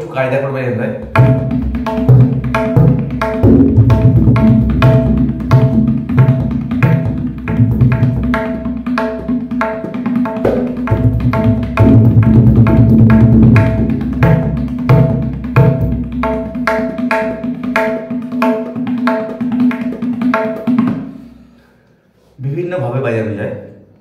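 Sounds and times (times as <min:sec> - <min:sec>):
deep tabla bass strokes: 0:01.0 - 0:08.8, 0:10.3 - 0:16.8
tabla treble strokes: 0:01.0 - 0:21.2.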